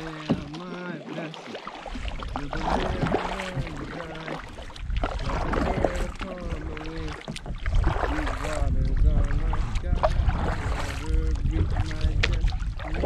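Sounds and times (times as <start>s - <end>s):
paddle splashing in water: 0.0s - 13.0s
wind rumble on microphone: 1.8s - 13.0s.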